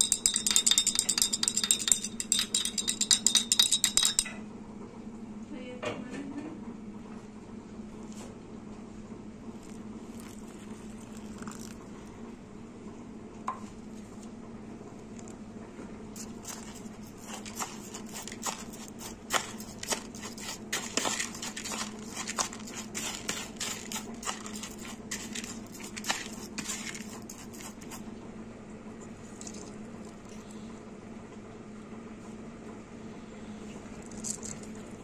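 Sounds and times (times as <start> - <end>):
spoon stirring grain in bowl: 0.0 - 4.4, 9.6 - 11.8, 16.2 - 28.0, 29.2 - 30.5.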